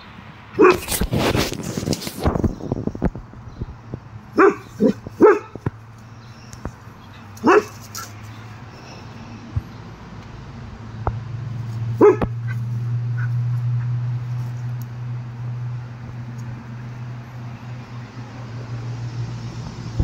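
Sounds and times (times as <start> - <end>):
dog barking: 0.6 - 0.9, 4.4 - 5.6, 7.4 - 8.1, 12.0 - 12.6.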